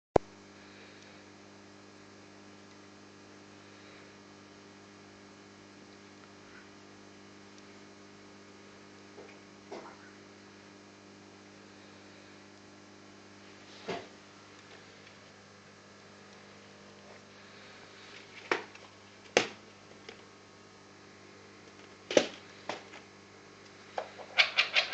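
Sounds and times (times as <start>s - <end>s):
low electrical hum: 0.2s - 24.9s.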